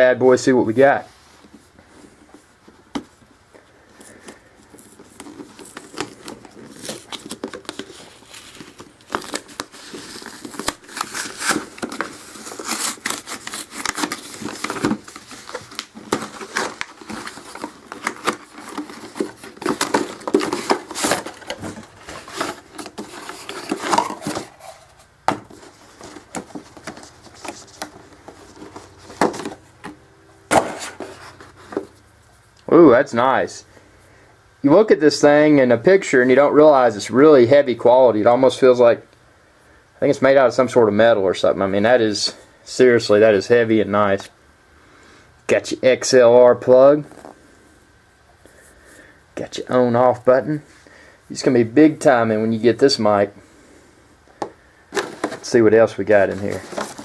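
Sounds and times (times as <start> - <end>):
packing crinkling and rustling: 3.9 - 32.0, 54.4 - 57.0
cardboard tearing: 4.8 - 29.6, 56.2 - 57.0.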